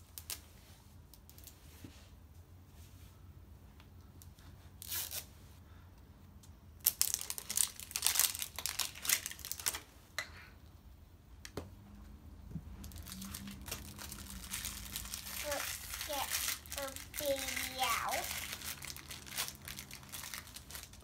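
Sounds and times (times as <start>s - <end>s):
wrapping tearing and crinkling: 4.8s - 5.3s, 6.8s - 9.9s, 12.8s - 21.0s.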